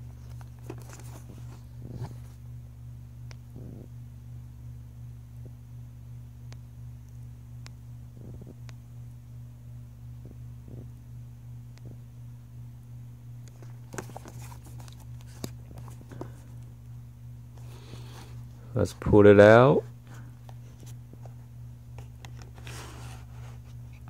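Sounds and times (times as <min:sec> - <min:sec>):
steady low hum: 0:00.0 - 0:24.0
cardboard box rustling and clicks: 0:00.2 - 0:02.3, 0:13.5 - 0:16.4.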